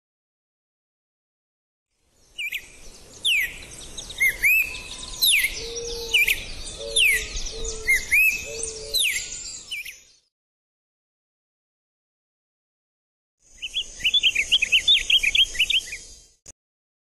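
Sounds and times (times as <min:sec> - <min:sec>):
bird singing whistled phrases: 0:02.4 - 0:02.6, 0:03.2 - 0:10.3, 0:13.6 - 0:16.1.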